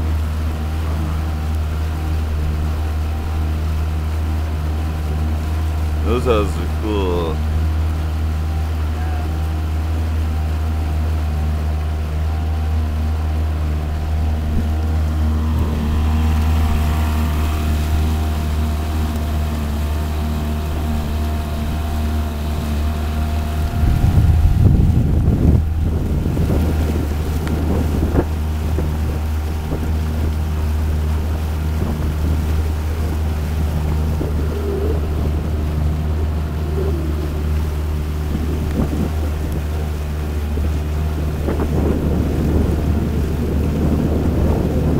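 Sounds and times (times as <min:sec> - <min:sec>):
motorboat engine droning: 0:00.0 - 0:44.9
wind buffeting microphone: 0:09.5 - 0:44.9.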